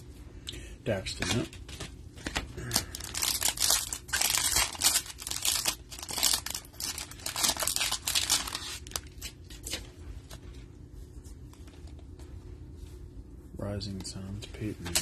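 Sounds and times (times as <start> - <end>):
foil wrapper tearing and crinkling: 2.6 - 9.8.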